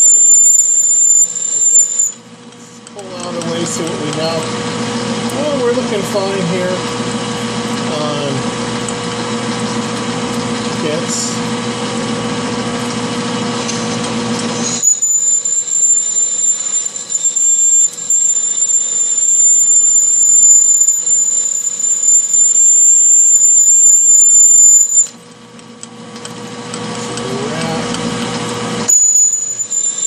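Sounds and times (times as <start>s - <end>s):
drill bit squealing on steel: 0.0s - 6.9s, 13.8s - 25.2s, 28.8s - 30.0s
lathe machine hum: 0.0s - 30.0s.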